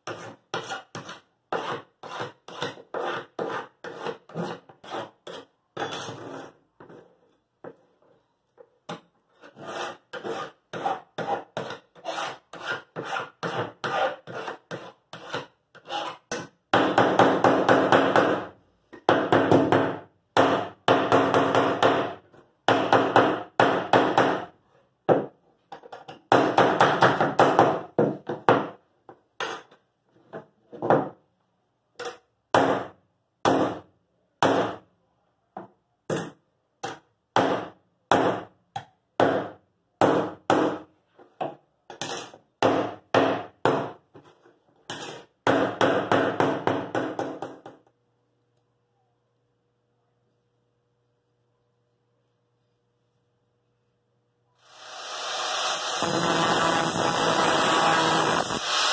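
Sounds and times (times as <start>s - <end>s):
file rasping on metal: 0.0s - 5.5s, 9.4s - 16.3s.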